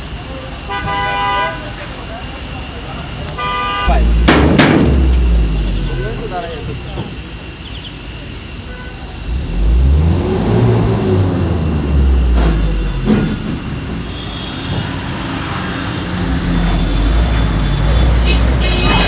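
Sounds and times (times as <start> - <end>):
vehicle engine revving: 3.8 - 19.0
sharp knocks: 4.2 - 5.3.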